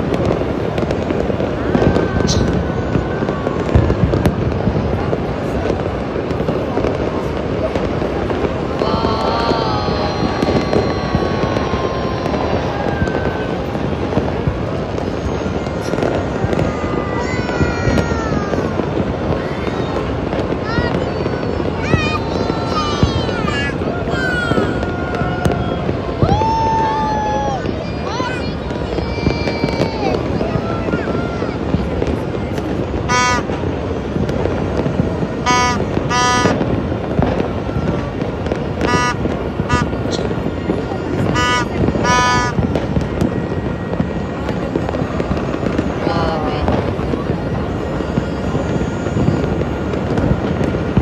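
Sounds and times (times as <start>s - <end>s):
firecrackers crackling and popping: 0.0s - 51.0s.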